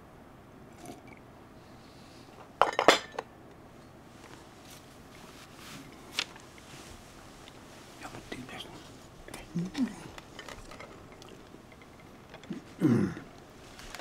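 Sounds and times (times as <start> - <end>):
porcelain cup clinking: 2.6 - 3.3.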